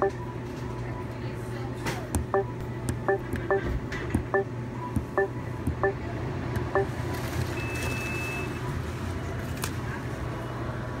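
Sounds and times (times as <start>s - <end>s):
steady low hum: 0.0s - 7.3s
short electronic beeps: 6.7s - 6.9s.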